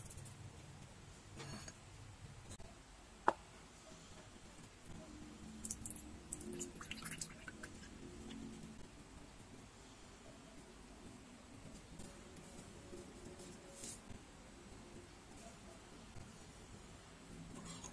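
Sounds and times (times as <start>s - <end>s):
liquid pouring into bowl: 5.6s - 7.9s.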